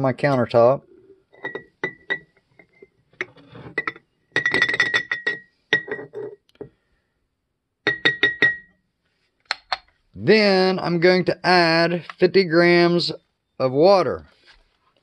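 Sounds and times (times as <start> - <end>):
cup clinking on glass jar: 1.3 - 6.4, 7.8 - 8.8.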